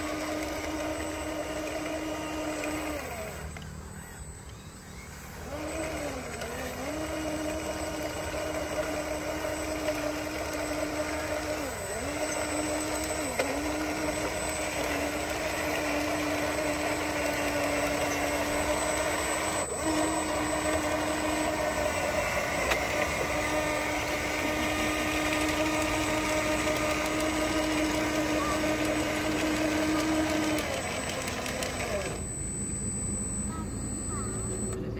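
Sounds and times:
toy bulldozer motors whining: 0:00.0 - 0:34.9
click: 0:03.5 - 0:03.7.

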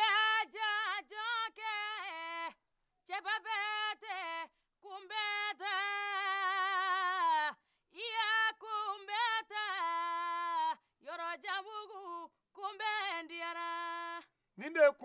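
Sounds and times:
woman singing unaccompanied: 0:00.0 - 0:14.4.

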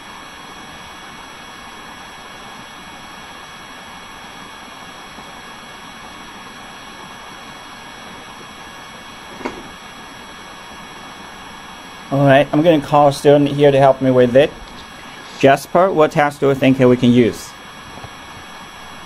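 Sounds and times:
faint whining tones: 0:00.0 - 0:19.0
recording hiss: 0:10.9 - 0:19.0.

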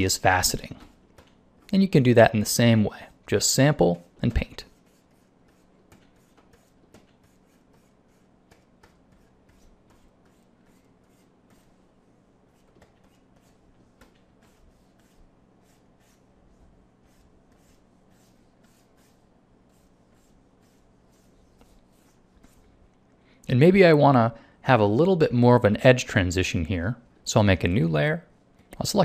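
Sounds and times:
stylus scratching on tablet: 0:03.8 - 0:22.8.

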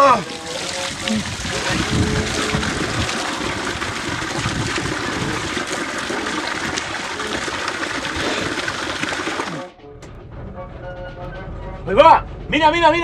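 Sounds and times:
water splashing into tubs: 0:00.0 - 0:09.7
water gushing from pipe: 0:00.0 - 0:09.8.

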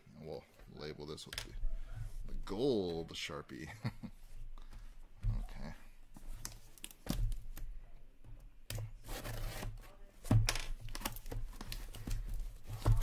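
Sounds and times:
cardboard knocks and scrapes: 0:08.7 - 0:13.0
cardboard tearing: 0:09.0 - 0:09.9.

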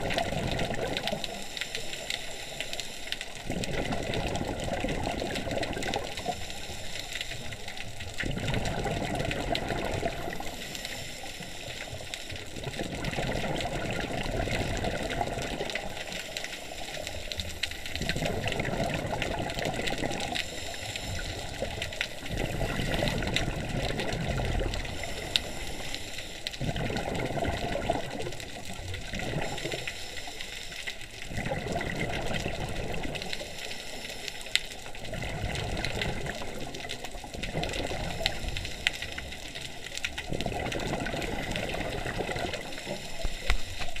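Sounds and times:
exhaled air bubbling underwater: 0:00.0 - 0:44.0
regulator hiss: 0:01.3 - 0:03.3, 0:06.1 - 0:07.7, 0:20.3 - 0:23.1, 0:24.8 - 0:26.5.

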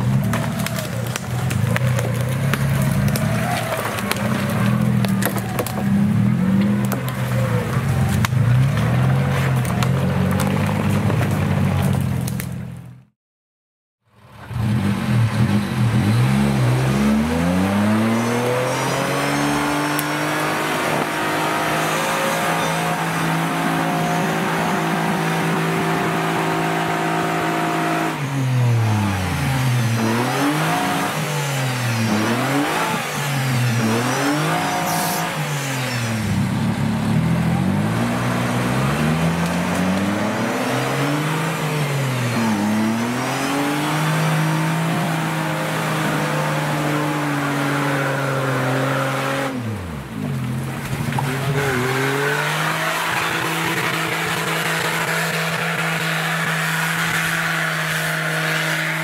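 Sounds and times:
engine revving hard: 0:14.4 - 0:50.1, 0:50.8 - 0:59.0.

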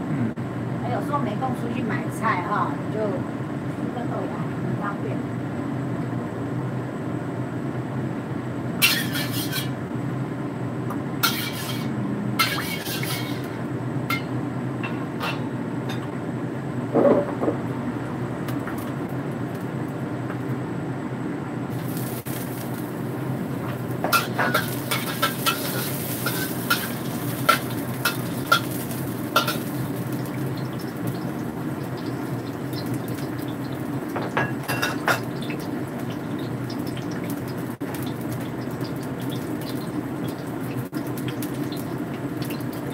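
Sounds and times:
garlic sizzling in hot oil: 0:08.8 - 0:09.8, 0:11.2 - 0:14.3, 0:21.7 - 0:42.9
metal spatula scraping a wok: 0:08.8 - 0:09.8, 0:11.2 - 0:13.6, 0:24.1 - 0:29.7
low hum: 0:09.8 - 0:12.8.

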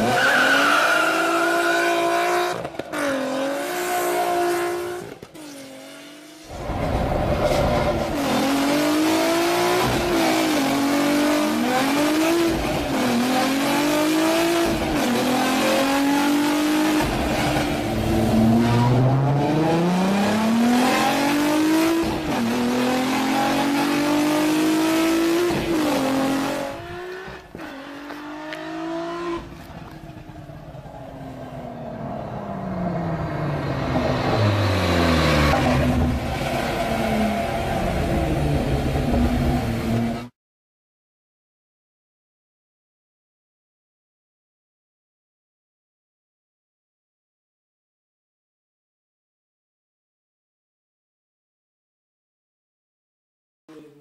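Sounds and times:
car engine accelerating through gears: 0:07.4 - 0:40.3.

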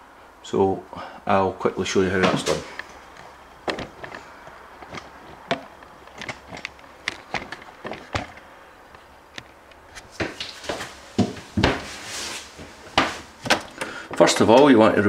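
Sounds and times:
light clicks and knocks: 0:02.2 - 0:11.9
short rustle: 0:09.8 - 0:13.4.

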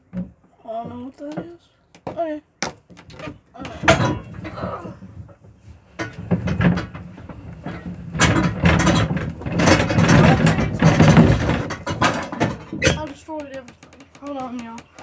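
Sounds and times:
metal parts rattling: 0:03.0 - 0:04.5, 0:07.6 - 0:15.0.

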